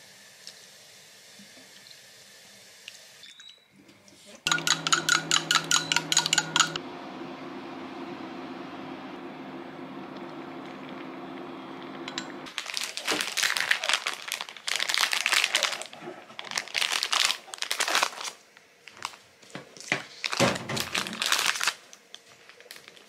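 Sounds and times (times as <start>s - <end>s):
low hum: 4.5s - 12.5s
food packaging crinkling: 12.5s - 23.0s.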